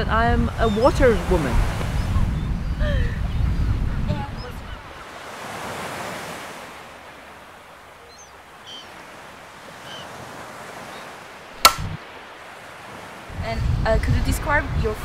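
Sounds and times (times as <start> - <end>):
gentle surf on sandy shore: 0.0 - 15.0
wind: 0.0 - 15.0
sharp click: 11.6 - 12.0.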